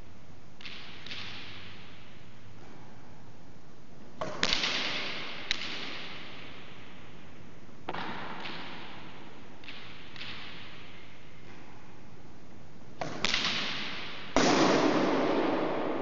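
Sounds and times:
ball cracking off racquet and walls: 4.2s - 6.5s, 7.9s - 10.8s, 13.0s - 16.0s.

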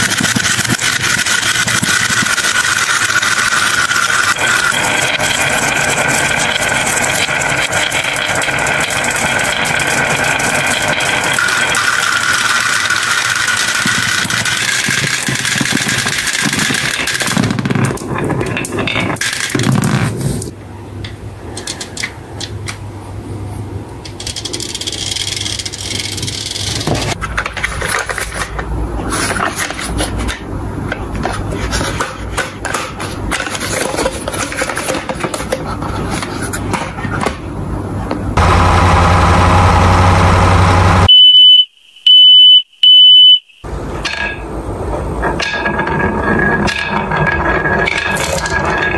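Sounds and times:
plastic toy trucks clicking: 0.0s - 18.0s, 21.5s - 22.8s, 24.0s - 36.6s
toy truck pushed along: 0.0s - 20.4s, 24.1s - 30.4s, 45.2s - 48.9s
marbles rattling down wooden track: 0.0s - 20.5s, 24.1s - 28.5s, 45.2s - 48.9s.

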